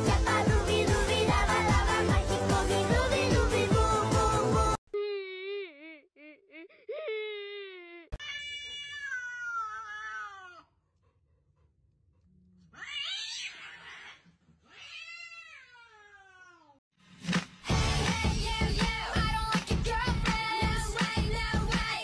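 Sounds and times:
cat meowing: 8.2s - 10.6s, 12.8s - 14.1s, 14.7s - 16.8s.

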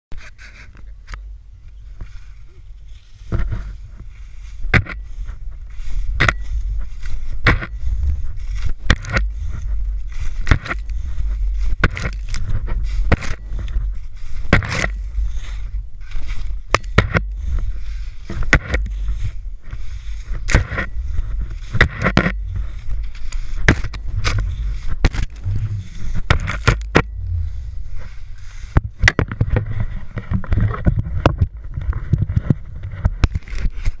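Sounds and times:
wind buffeting camera: 0.2s - 34.0s
ski pole knocking in snow: 4.6s - 5.4s, 6.0s - 27.5s.

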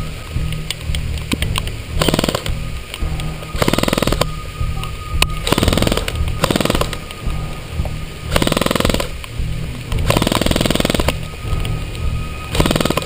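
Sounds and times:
background music with steady beat: 0.0s - 13.0s
airsoft rifle full-auto fire: 2.0s - 2.5s, 5.5s - 7.0s, 8.3s - 9.1s, 10.1s - 11.1s, 12.5s - 13.0s.

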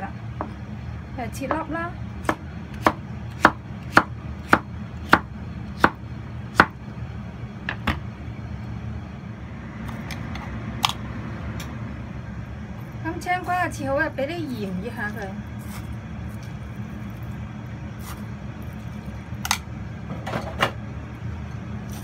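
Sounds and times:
steady low hum: 0.0s - 22.0s
knife chopping on wooden board: 2.2s - 6.0s, 6.6s - 6.8s.

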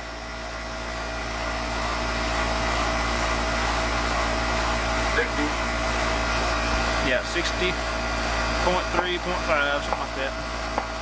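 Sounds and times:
air conditioner fan running: 0.0s - 11.0s.

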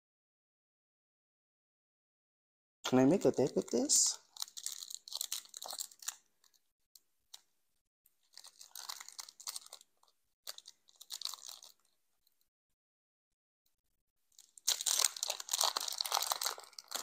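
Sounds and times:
foil wrapper crinkling and tearing: 2.9s - 6.6s, 8.2s - 12.0s, 14.4s - 17.0s.

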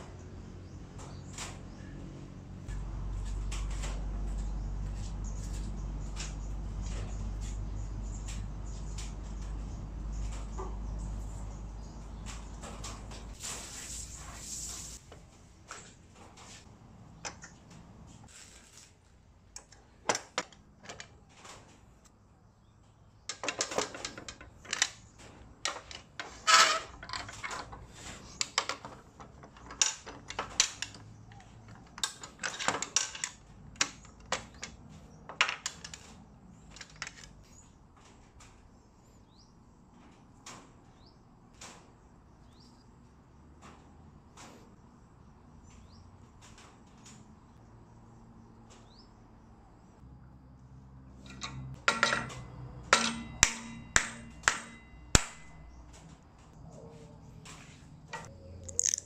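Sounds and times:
clamps and blocks clicking on steel: 51.2s - 55.5s, 58.2s - 59.0s.

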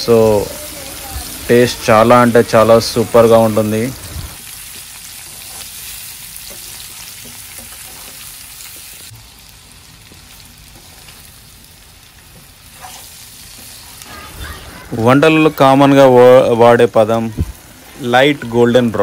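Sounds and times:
fruit sizzling in hot oil: 0.0s - 19.0s
metal spatula stirring: 5.2s - 8.4s, 12.6s - 14.4s.

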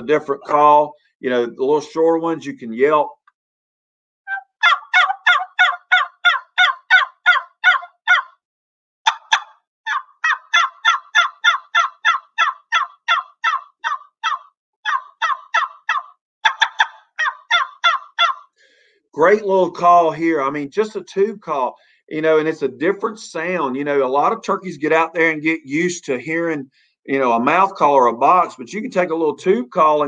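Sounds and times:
turkey call yelps: 4.3s - 8.4s, 9.0s - 18.5s.

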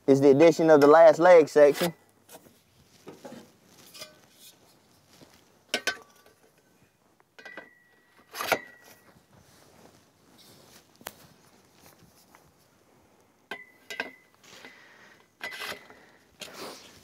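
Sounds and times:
metal poles clinking: 3.0s - 4.8s, 5.7s - 6.7s, 7.3s - 9.2s, 13.5s - 14.8s, 15.4s - 16.6s
sharp metal clanks: 5.7s - 6.4s, 13.5s - 14.3s
metallic ring: 7.4s - 9.1s, 13.5s - 14.3s.

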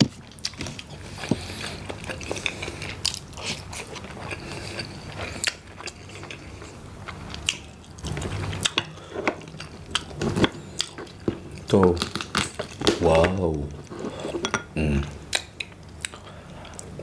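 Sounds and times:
chewing: 0.3s - 12.8s
crab shell cracking: 11.7s - 13.1s.

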